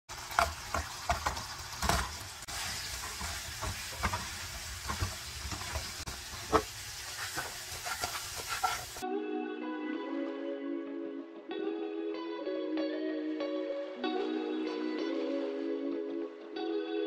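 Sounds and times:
glaze sizzling in a frying pan: 0:00.1 - 0:09.0
spatula knocking and scraping pan: 0:00.1 - 0:09.0.

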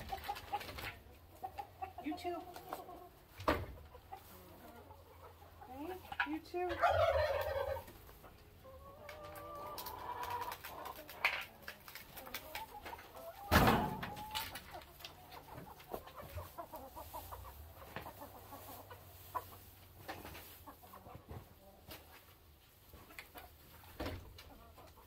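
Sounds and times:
hens clucking: 0:00.0 - 0:25.0
loud thump: 0:13.5 - 0:14.0.

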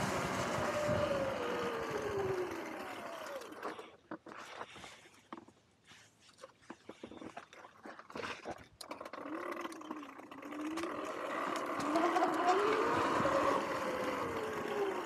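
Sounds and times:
electric motor whine: 0:00.0 - 0:03.7, 0:10.8 - 0:15.0.

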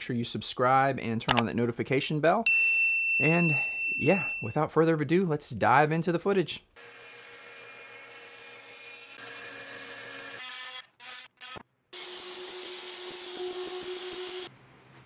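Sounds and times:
oscillating multi-tool cutting plywood: 0:06.8 - 0:14.5.

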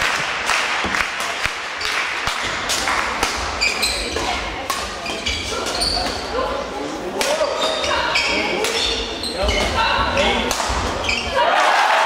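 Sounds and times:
crowd murmur: 0:02.4 - 0:09.2
shoes squeaking on hall floor: 0:03.4 - 0:06.6, 0:07.3 - 0:11.4.

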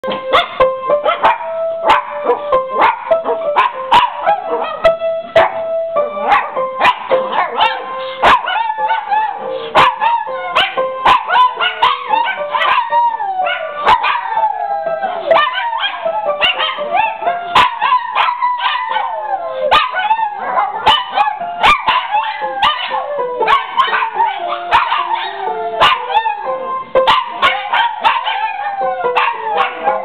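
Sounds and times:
piano playing: 0:00.0 - 0:30.0
dogs howling and yipping: 0:00.4 - 0:30.0.

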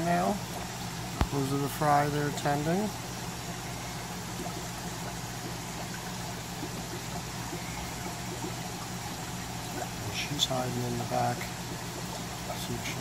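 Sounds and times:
air bubbling through aquarium water: 0:00.0 - 0:13.0
steady low hum: 0:00.0 - 0:13.0.

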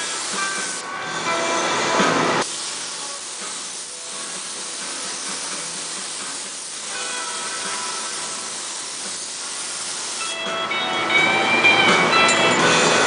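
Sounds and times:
spray gun hissing: 0:00.0 - 0:01.3, 0:02.4 - 0:10.4.

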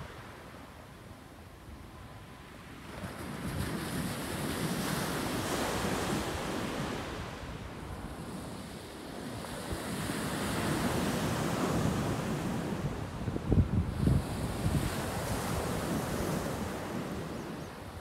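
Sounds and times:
surf on pebbly beach: 0:00.0 - 0:00.9, 0:02.0 - 0:18.0
wind rumbling on microphone: 0:02.7 - 0:18.0.

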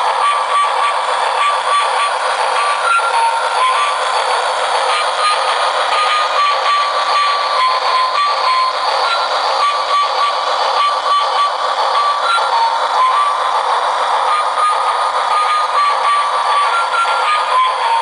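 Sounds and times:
toy train chugging sound effect: 0:00.0 - 0:18.0
simple beeping tune: 0:14.3 - 0:18.0.

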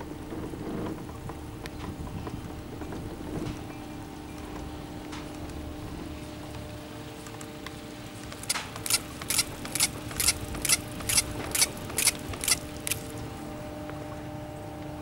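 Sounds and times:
steady low hum: 0:00.0 - 0:15.0
chairlift grip clacking: 0:08.2 - 0:13.1.

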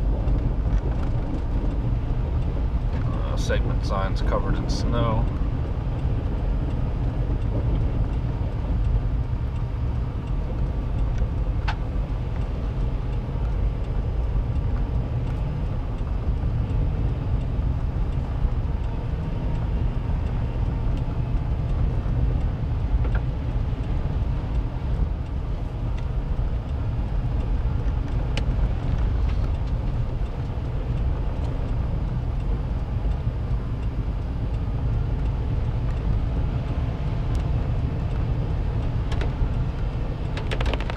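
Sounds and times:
vehicle driving heard from inside: 0:00.0 - 0:40.9
faint ticks: 0:06.0 - 0:40.9.

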